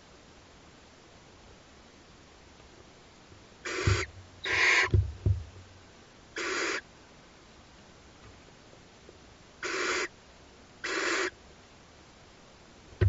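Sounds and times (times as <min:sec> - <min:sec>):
owl chicks hissing calls: 0:03.6 - 0:05.0, 0:06.4 - 0:06.9, 0:09.6 - 0:10.2, 0:10.8 - 0:11.4
dull low thumps: 0:03.9 - 0:05.8.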